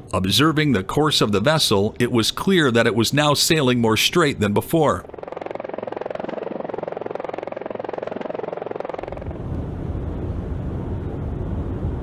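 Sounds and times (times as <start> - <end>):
helicopter rotor chopping: 0.0 - 10.6
deep steady rumble: 3.8 - 12.0.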